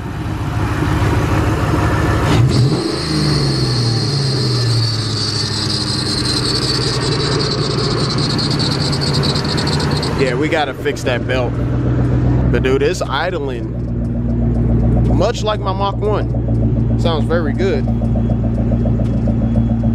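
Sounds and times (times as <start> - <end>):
car engine revving and idling: 0.0 - 19.9
high-pitched belt squeal: 2.5 - 11.6.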